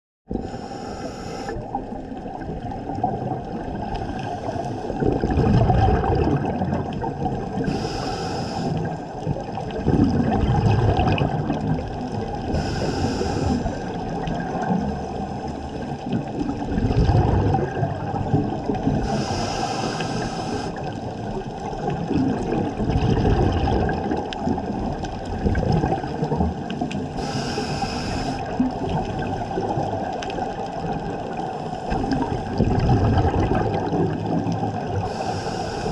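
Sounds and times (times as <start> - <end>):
bubbling exhaled air: 0.3 - 35.9
muffled water noise: 0.3 - 35.9
scuba regulator hissing inhalation: 0.4 - 1.6, 4.0 - 5.0, 7.6 - 9.0, 12.5 - 14.0, 19.0 - 20.9, 27.2 - 28.5, 35.0 - 35.9.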